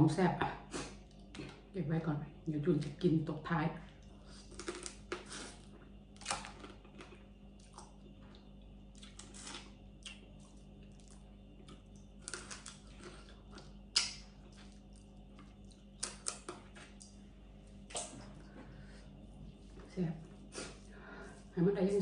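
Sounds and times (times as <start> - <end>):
eating crab with sucks and smacks: 4.2 - 17.2, 17.8 - 18.4.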